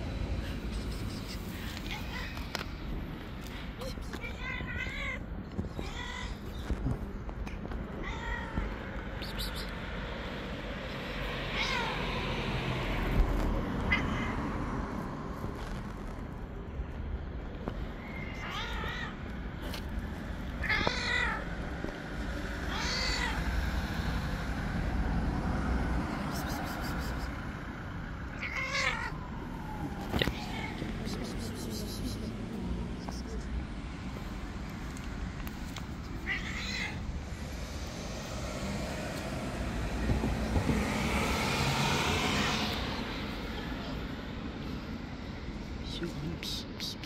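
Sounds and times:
low traffic rumble: 0:00.0 - 0:47.0
cat meowing angrily: 0:04.2 - 0:06.4, 0:07.9 - 0:08.8, 0:11.5 - 0:12.3, 0:13.8 - 0:14.5, 0:18.2 - 0:19.2, 0:20.6 - 0:21.5, 0:22.6 - 0:23.6, 0:28.3 - 0:29.2, 0:36.2 - 0:37.1
passing car hiss: 0:37.4 - 0:43.4.

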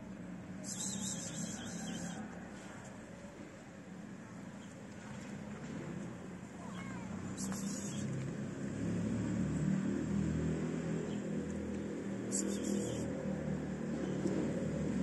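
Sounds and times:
vehicle engine rumble: 0:00.0 - 0:15.0.

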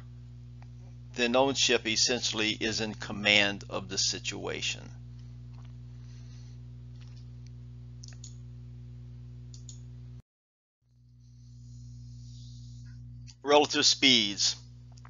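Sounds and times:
low electrical hum: 0:00.0 - 0:10.2, 0:10.9 - 0:15.0
faint clicks: 0:07.0 - 0:08.4, 0:09.5 - 0:09.8.

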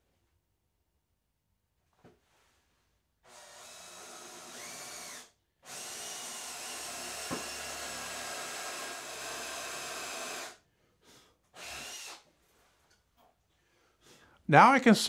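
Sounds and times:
cordless drill boring into wood: 0:03.2 - 0:10.6, 0:11.5 - 0:12.2.

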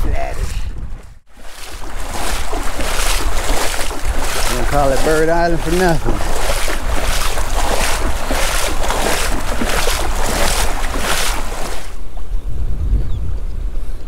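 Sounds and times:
wind rumble on microphone: 0:00.0 - 0:14.0
shallow water splashing: 0:01.3 - 0:12.2.

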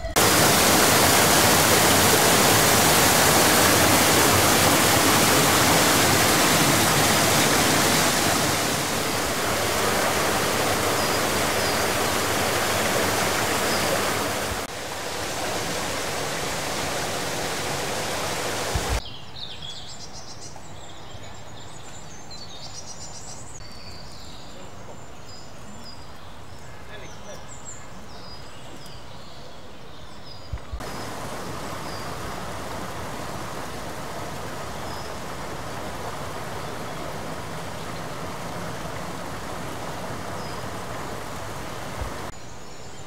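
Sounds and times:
water pouring and splashing: 0:00.0 - 0:19.0, 0:30.8 - 0:42.3
birds chirping faintly: 0:00.0 - 0:43.0
quiet stream: 0:00.0 - 0:43.0.

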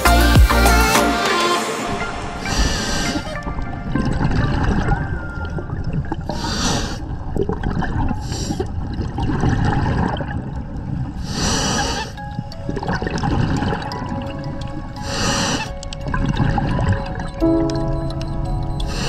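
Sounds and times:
bubbles gurgling underwater: 0:03.4 - 0:11.2, 0:12.1 - 0:19.0.

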